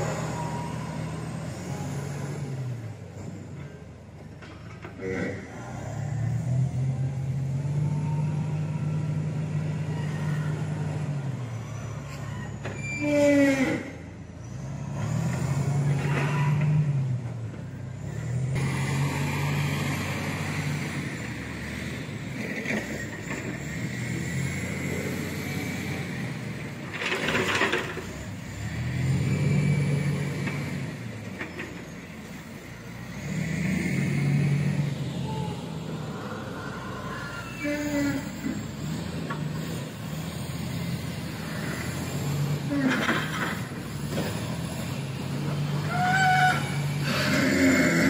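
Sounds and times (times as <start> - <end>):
diesel engine revving: 0.0 - 48.0.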